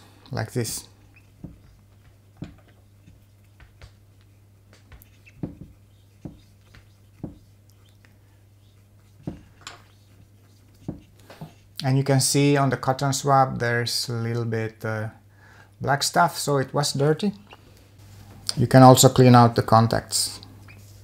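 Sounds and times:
cotton swab rubbing: 1.1 - 11.8.

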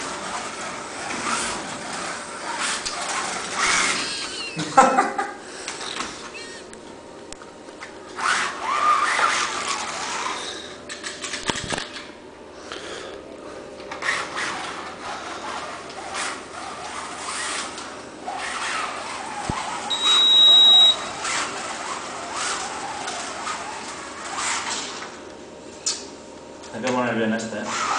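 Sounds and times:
slot car motor whining: 0.0 - 4.8, 8.1 - 10.8, 14.0 - 25.2
steady high beep: 19.9 - 21.0.

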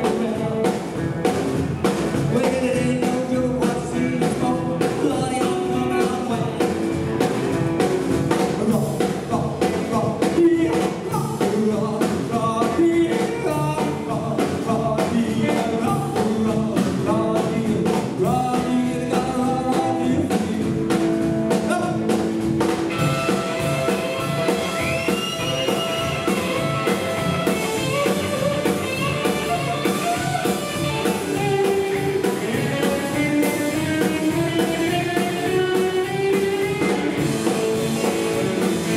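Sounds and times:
man singing: 0.0 - 1.0, 2.2 - 6.9, 8.3 - 22.2, 22.9 - 38.9
live rockabilly band playing: 0.0 - 38.9
electric guitar solo: 22.9 - 38.9.

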